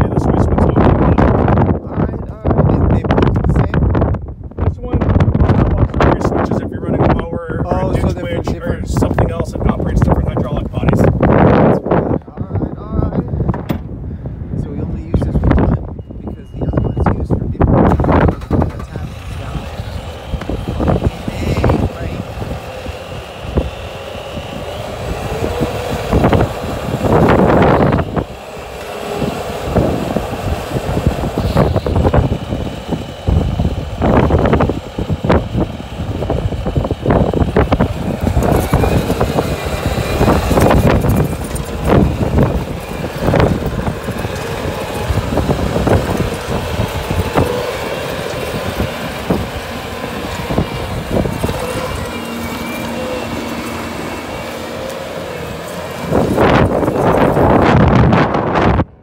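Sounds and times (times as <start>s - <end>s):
mechanical whine: 0.0s - 13.9s, 14.5s - 59.0s
diesel engine running: 0.0s - 59.0s
loud rushes of noise: 14.6s - 59.0s.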